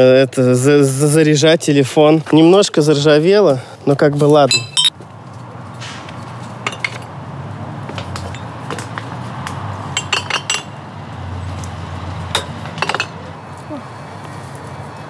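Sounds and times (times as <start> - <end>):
glass bottles clinking: 4.5 - 4.9, 6.6 - 7.1, 10.0 - 10.8, 12.3 - 13.2.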